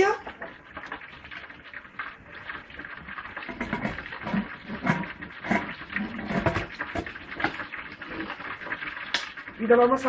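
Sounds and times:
water moving in pot: 0:00.0 - 0:10.0
metal lid scraping and clanking: 0:03.4 - 0:07.6.

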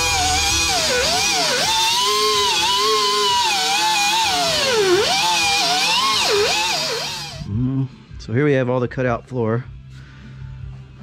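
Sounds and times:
grinder cutting sheet steel: 0:00.0 - 0:07.5.

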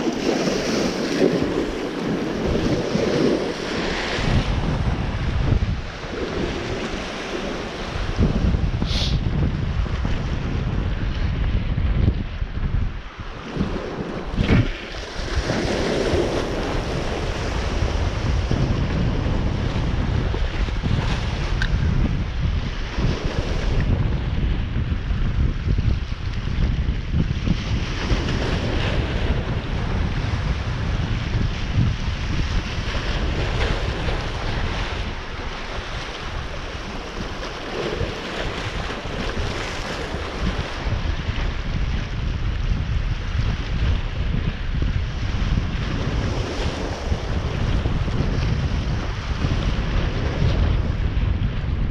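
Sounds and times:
water rushing: 0:00.0 - 0:09.4
water waves rushing: 0:00.0 - 0:23.9, 0:28.2 - 0:51.9
wind buffeting microphone: 0:00.0 - 0:51.9.

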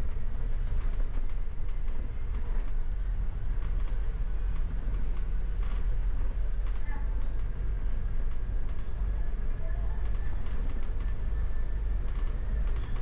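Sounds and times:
bus cabin rumble: 0:00.0 - 0:13.0
small rattles and clicks: 0:00.3 - 0:02.8, 0:03.6 - 0:07.6, 0:08.2 - 0:09.0, 0:10.0 - 0:11.3, 0:12.0 - 0:13.0.

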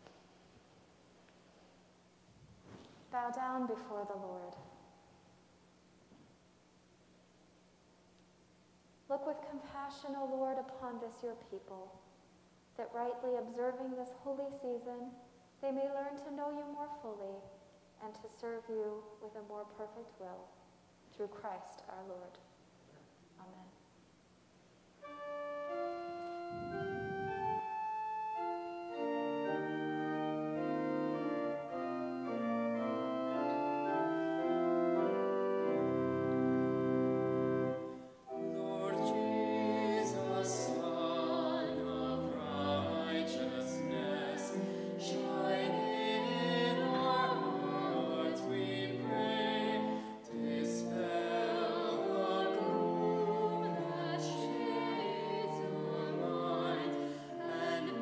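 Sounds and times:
church organ chords: 0:25.0 - 0:58.0
person singing: 0:38.3 - 0:58.0.

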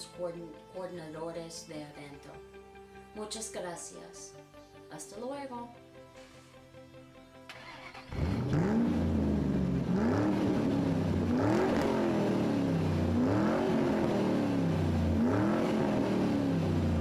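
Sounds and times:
car engine revving: 0:07.5 - 0:17.0.

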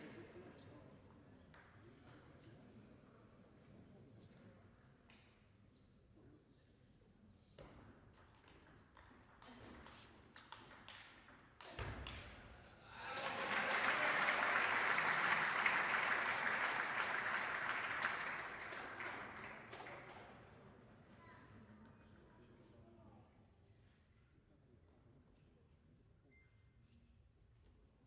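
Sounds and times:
spectators applauding: 0:12.9 - 0:20.4.

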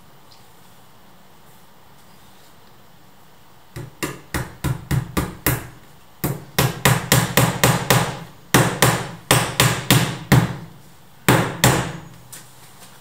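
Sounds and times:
hammer blows on door: 0:03.8 - 0:10.7.

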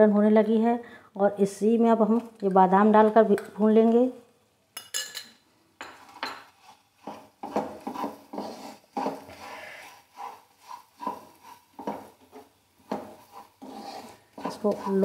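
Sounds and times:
spoon scraping and knocking a pan: 0:04.8 - 0:15.0.

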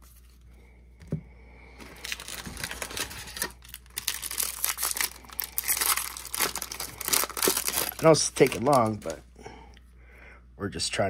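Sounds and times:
foil wrapper crinkling and tearing: 0:01.8 - 0:09.2.

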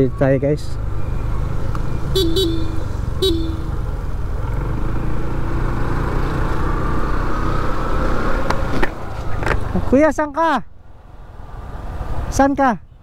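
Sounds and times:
vehicle horn tooting: 0:02.1 - 0:03.8.

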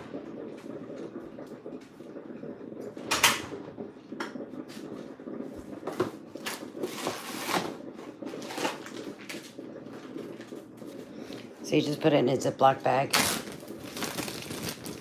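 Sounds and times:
plastic bag crinkling: 0:13.1 - 0:15.0.

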